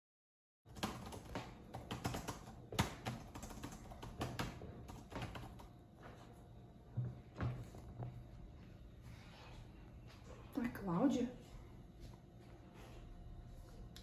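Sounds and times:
laptop keyboard typing: 0.7 - 5.8.

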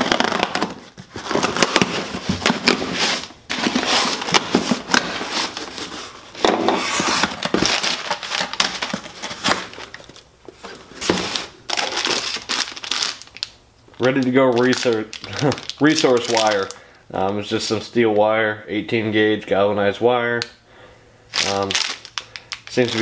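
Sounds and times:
packing tape cut and torn: 0.0 - 5.9
packing paper crinkling: 0.0 - 17.0, 21.3 - 23.0.

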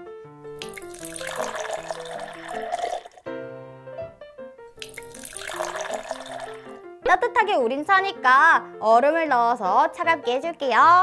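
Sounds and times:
light background music: 0.0 - 11.0
liquid pouring into plastic cup: 0.6 - 3.2, 4.8 - 6.8.

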